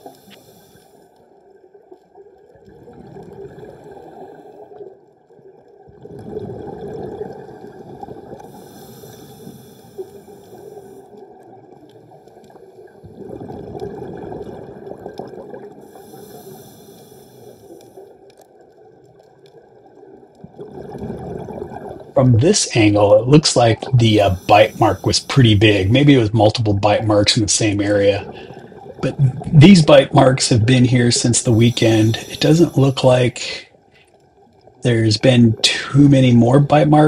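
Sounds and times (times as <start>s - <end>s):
muffled underwater moving water: 0.0s - 37.0s.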